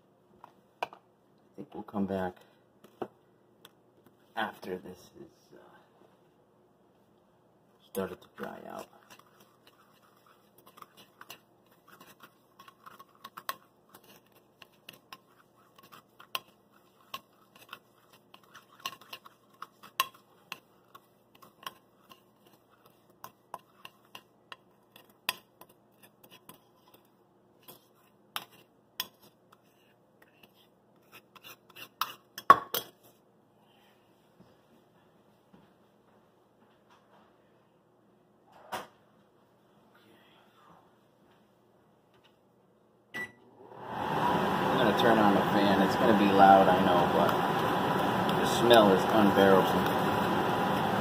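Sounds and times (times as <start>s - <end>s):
metal spoon scraping a bowl: 8.4s - 33.0s.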